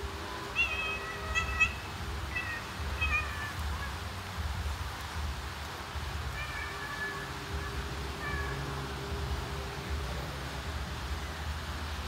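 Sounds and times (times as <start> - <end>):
cat chirping calls: 0.3 - 4.1, 6.2 - 8.9.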